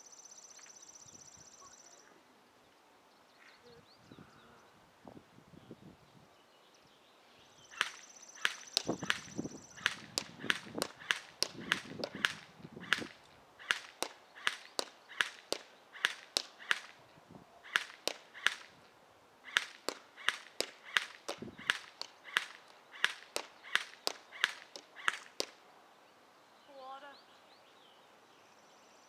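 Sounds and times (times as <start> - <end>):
airsoft rifle shots: 7.7 - 17.0, 17.6 - 18.8, 19.4 - 25.6.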